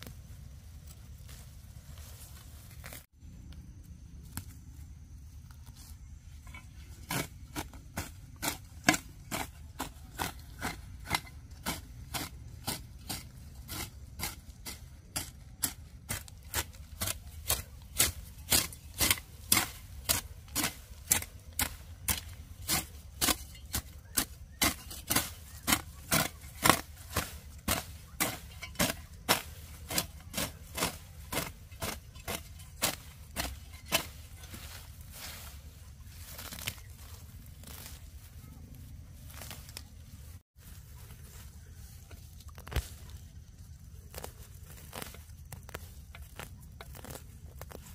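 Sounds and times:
hand tool chopping: 6.9 - 35.0.

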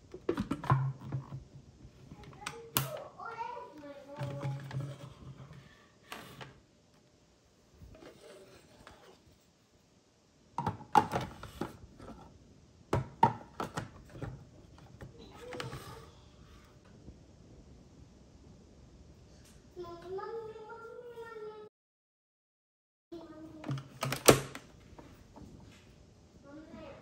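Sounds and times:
plastic parts clicking and knocking: 0.1 - 1.5, 10.6 - 12.2, 12.9 - 15.8.

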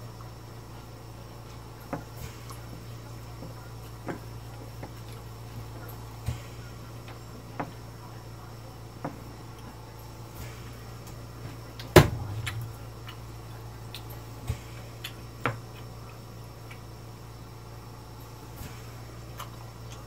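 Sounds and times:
quiet chewing: 0.0 - 20.0
steady low hum: 0.0 - 20.0.

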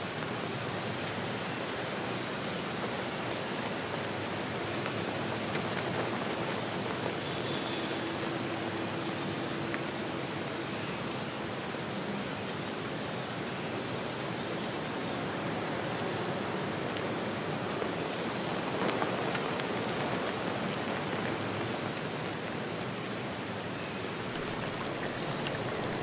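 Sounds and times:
water rushing over rocks: 1.8 - 12.0, 16.0 - 26.0.

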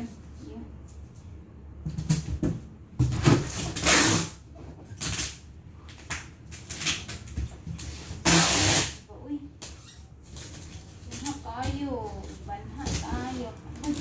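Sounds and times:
packing tape pulled off roll: 3.3 - 9.0.

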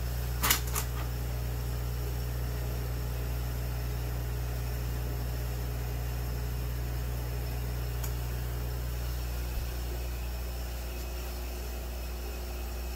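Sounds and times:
aquarium air pump humming: 0.0 - 12.9.

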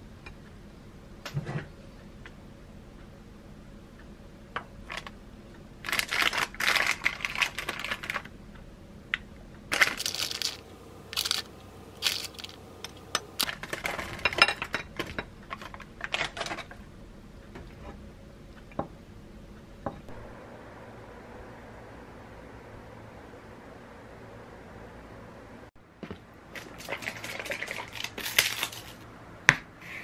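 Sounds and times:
plastic pouch crinkling and tearing: 5.9 - 8.3, 9.7 - 12.6, 26.6 - 29.0.

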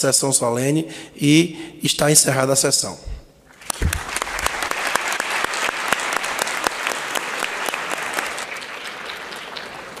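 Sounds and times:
audience applauding: 3.6 - 10.0.

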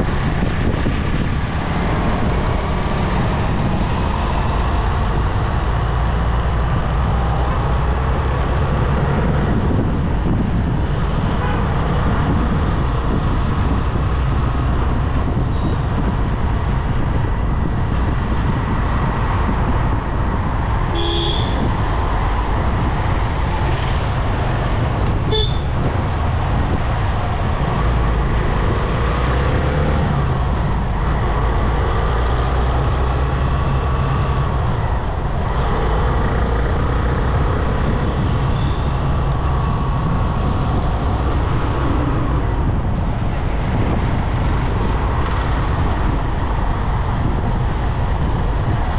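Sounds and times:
vehicle road noise: 0.0 - 48.9
car horn toots: 20.9 - 21.7, 25.3 - 25.7.

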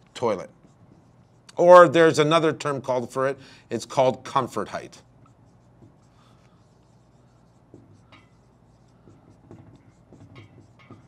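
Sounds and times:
marker squeaking on whiteboard: 0.0 - 2.1, 4.4 - 11.0.

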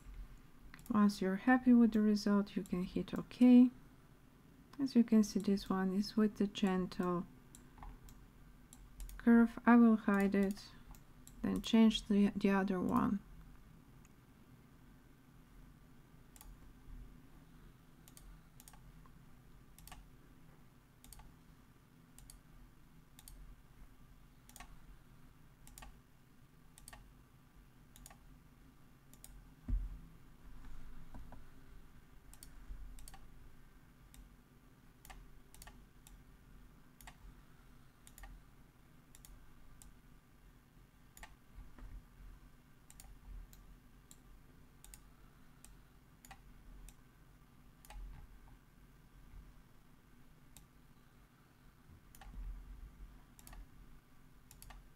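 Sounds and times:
computer mouse clicks: 0.0 - 1.0, 6.9 - 9.2, 10.1 - 11.8, 16.3 - 16.6, 18.0 - 19.1, 19.8 - 20.1, 21.0 - 21.4, 22.2 - 22.4, 23.2 - 23.4, 24.4 - 24.8, 25.6 - 26.0, 26.8 - 27.1, 27.9 - 28.3, 29.1 - 29.4, 32.3 - 33.3, 35.0 - 36.2, 37.0 - 37.3, 38.0 - 38.4, 39.1 - 40.0, 41.1 - 41.9, 42.9 - 47.0, 47.8 - 48.3, 50.5 - 50.7, 52.1 - 52.4, 53.4 - 53.7, 54.5 - 54.8
steady low hum: 0.0 - 54.9
low thump: 29.7 - 30.0.

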